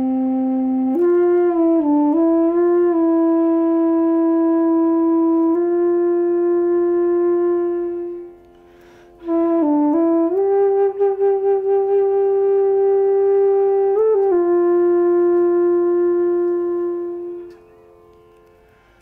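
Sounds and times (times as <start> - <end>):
wooden flute playing low notes: 0.0 - 19.0
breath: 8.5 - 9.3, 18.6 - 19.0.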